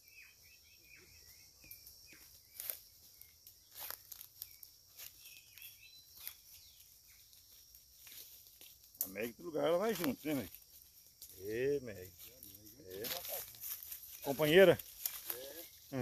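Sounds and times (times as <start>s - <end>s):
faint bird chirps: 0.0s - 8.4s
high insect hum: 0.0s - 16.0s
footsteps crunching on dry leaves: 2.1s - 16.0s.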